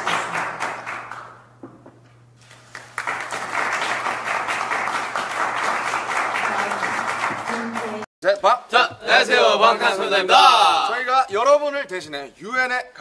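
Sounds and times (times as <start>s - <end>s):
people clapping: 0.0s - 1.7s, 2.4s - 8.1s.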